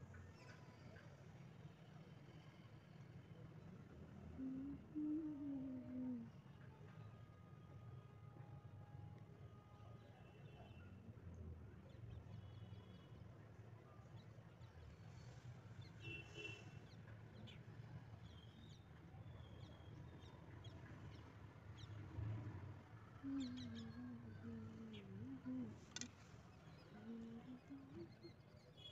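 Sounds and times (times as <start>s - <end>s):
low steady hum: 4.1s - 7.2s, 23.2s - 28.7s
faint wavering call: 4.4s - 6.3s, 23.2s - 25.8s
faint bird chirps: 23.2s - 28.9s.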